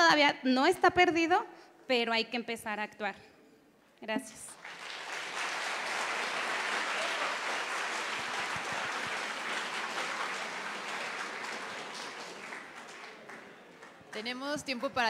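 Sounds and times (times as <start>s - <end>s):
audience applauding: 4.5s - 14.4s.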